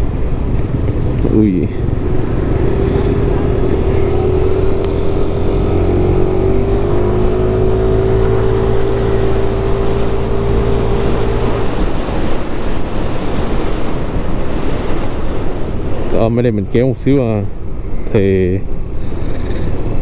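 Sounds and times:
scooter engine whine: 0.0 - 16.0
wind and road rush: 0.0 - 20.0.

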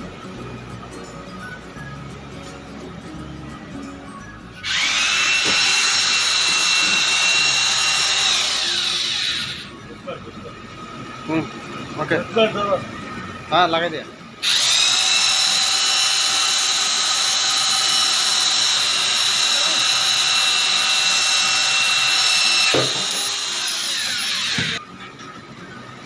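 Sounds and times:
electric drill boring into metal: 4.6 - 9.7, 14.4 - 24.8.

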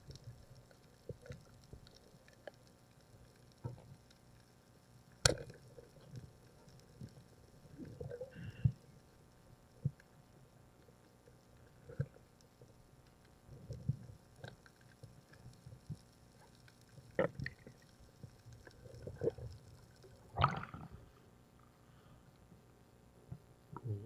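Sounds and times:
underwater bubbling: 0.0 - 21.2
splash: 20.4 - 20.9.

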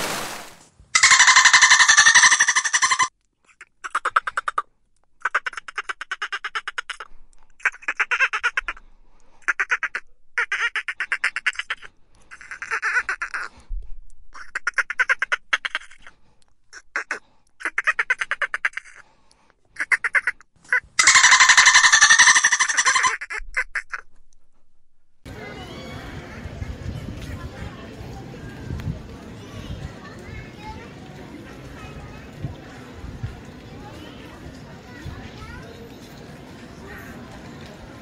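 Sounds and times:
dolphin clicking calls: 1.0 - 3.1, 20.7 - 23.2.

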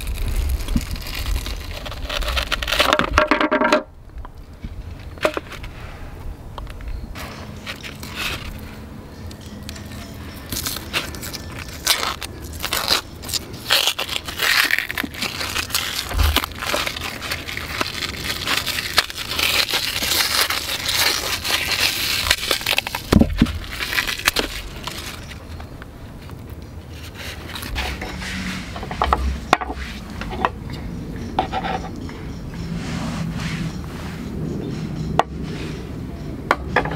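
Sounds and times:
cling film crinkling: 0.0 - 3.2, 9.7 - 29.2.

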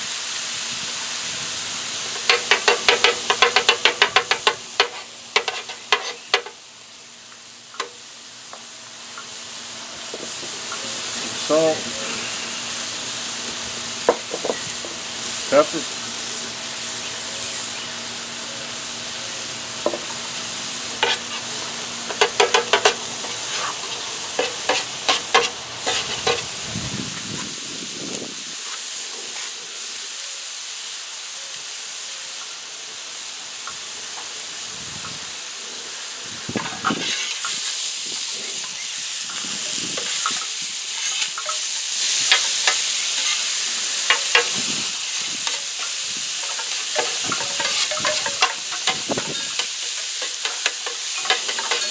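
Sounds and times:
food sizzling on a griddle: 0.0 - 51.9
metal spatula scraping griddle: 2.1 - 6.6, 21.0 - 26.6, 36.8 - 37.7, 40.0 - 51.9.

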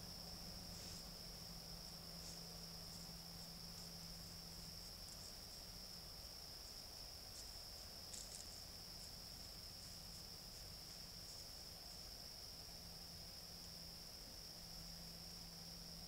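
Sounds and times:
night insects trilling: 0.0 - 16.0
faint ticks: 6.7 - 12.0.

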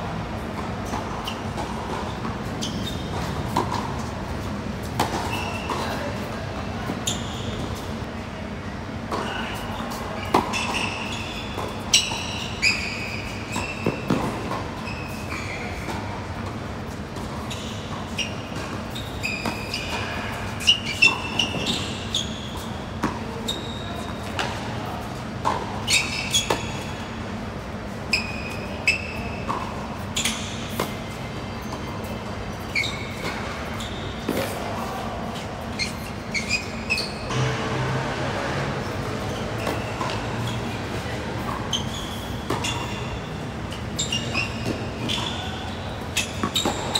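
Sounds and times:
sneakers squeaking on court: 0.4 - 46.9
tennis ball bouncing: 0.6 - 5.9, 13.5 - 15.2, 24.2 - 26.8, 38.8 - 42.9, 46.2 - 46.9
rackets striking tennis ball: 10.2 - 17.5, 37.3 - 46.9.

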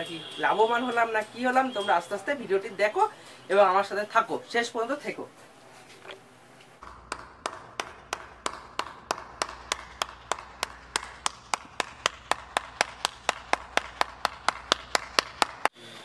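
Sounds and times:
person clapping hands: 6.8 - 15.7.

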